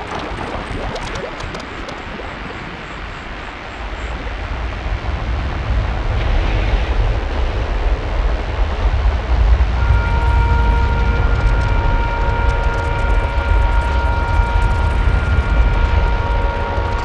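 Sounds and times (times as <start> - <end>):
experimental techno noise texture: 0.0 - 4.2, 8.9 - 17.0
deep bass rumble: 4.9 - 17.0.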